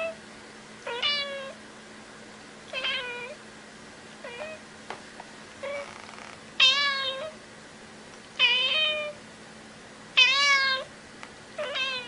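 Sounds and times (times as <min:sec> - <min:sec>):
cat meowing: 0:00.9 - 0:01.6, 0:02.7 - 0:03.4, 0:04.2 - 0:04.6, 0:05.6 - 0:07.4, 0:08.4 - 0:09.2, 0:10.2 - 0:10.9, 0:11.6 - 0:12.0.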